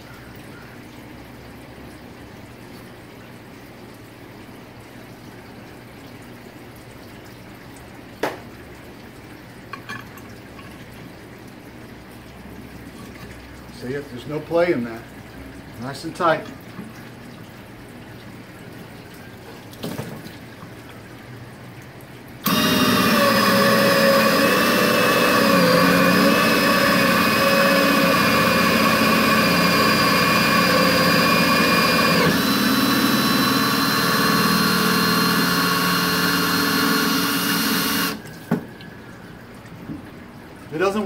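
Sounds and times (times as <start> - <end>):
cordless drill motor whine: 22.4 - 38.2.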